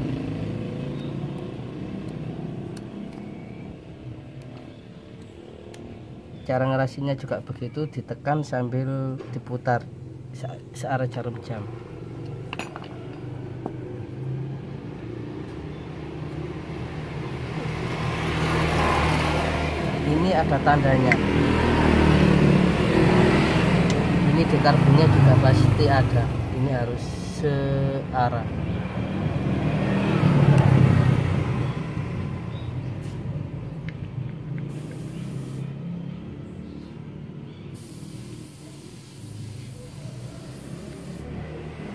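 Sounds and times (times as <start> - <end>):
vehicle engine humming: 0.0 - 6.4, 11.2 - 27.4, 28.4 - 41.9
vehicle engine running: 32.6 - 36.9.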